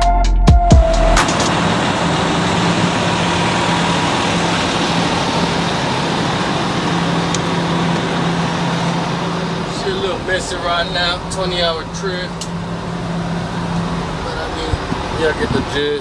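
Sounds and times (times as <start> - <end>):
electronic music with heavy beat: 0.0 - 1.6
diesel truck engine idling: 0.6 - 16.0.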